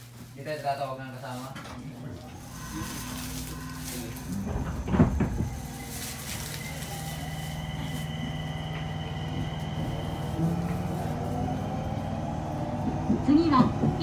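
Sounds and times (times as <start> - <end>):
low traction motor tones: 1.5 - 14.0
high inverter whine: 1.6 - 12.6
train thump: 3.6 - 11.1, 12.7 - 14.0.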